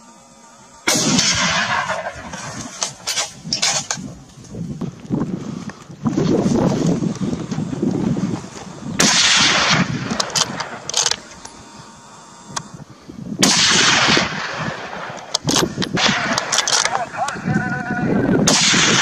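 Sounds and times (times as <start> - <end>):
loud gunshots with echo: 0.9 - 3.3, 9.0 - 10.8, 13.4 - 15.2, 16.0 - 16.8, 18.4 - 19.0
fainter gunshot cracks: 0.9 - 3.8, 9.0 - 10.8, 13.4 - 15.2, 18.5 - 19.0.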